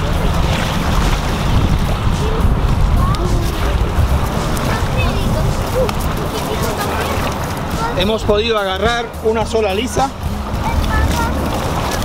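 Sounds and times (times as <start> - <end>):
waves washing on shore: 0.0 - 12.0
wind buffeting microphone: 0.0 - 12.0.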